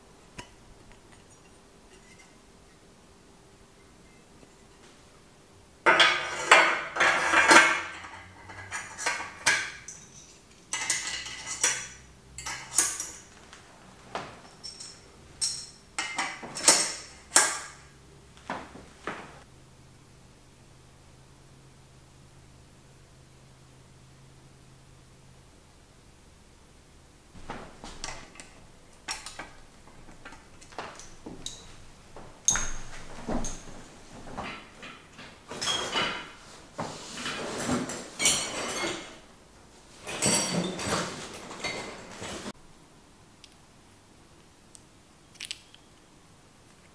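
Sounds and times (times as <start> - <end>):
metal bicycle parts clinking: 5.9 - 13.4, 14.3 - 17.8, 27.5 - 31.8, 32.4 - 36.4, 37.3 - 39.2, 40.0 - 42.5.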